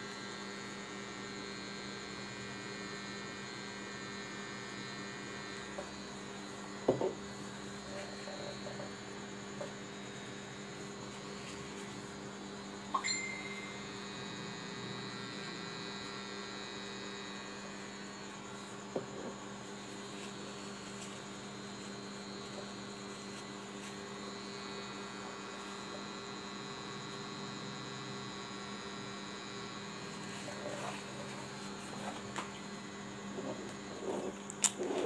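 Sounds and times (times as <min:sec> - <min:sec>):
tattoo machine humming: 0:00.0 - 0:35.0.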